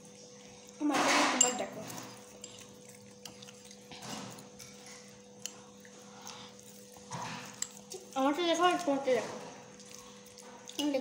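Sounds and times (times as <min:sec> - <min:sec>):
soft eating noise: 0:00.0 - 0:11.0
metal spoons clicking on bowls: 0:01.0 - 0:05.7, 0:07.4 - 0:09.1.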